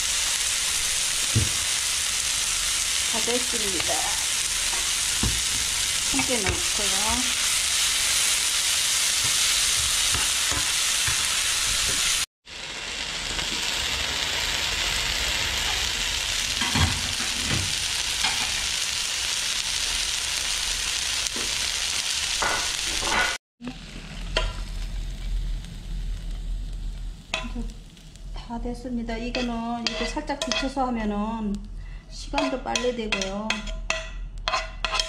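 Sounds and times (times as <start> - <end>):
potatoes sizzling in oil: 0.0 - 31.5
metal utensil stirring in pan: 29.2 - 30.8, 32.3 - 35.0
fork scraping a pan: 29.3 - 30.8, 32.4 - 35.0.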